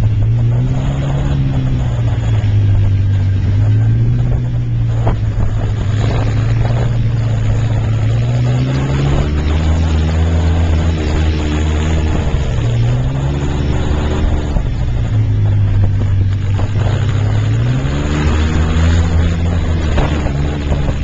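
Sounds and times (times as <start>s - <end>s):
off-road vehicle engine running: 0.0s - 21.0s
road and wind noise: 0.0s - 21.0s.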